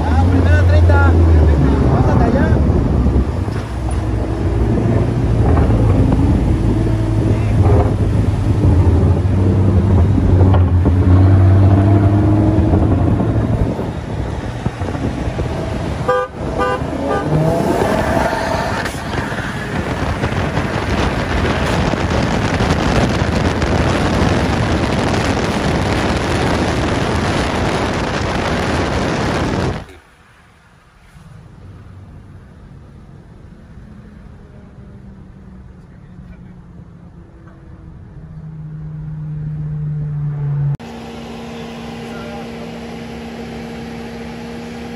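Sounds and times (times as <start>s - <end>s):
car engines droning in traffic: 0.0s - 44.9s
wind and road rush: 0.0s - 44.9s
short car horn toots: 16.1s - 17.4s.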